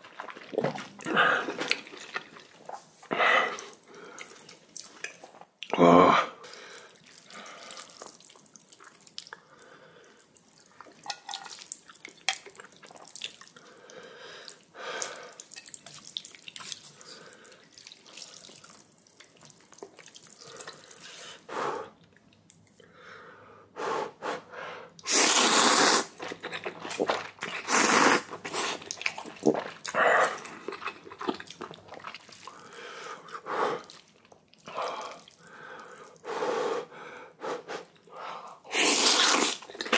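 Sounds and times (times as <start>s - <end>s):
noodles slurping: 0.0s - 5.3s, 25.0s - 36.2s, 38.6s - 39.9s
wet chewing and smacking: 0.0s - 5.7s, 6.8s - 9.5s, 10.3s - 13.7s, 14.5s - 21.1s, 26.1s - 36.2s, 39.0s - 39.9s.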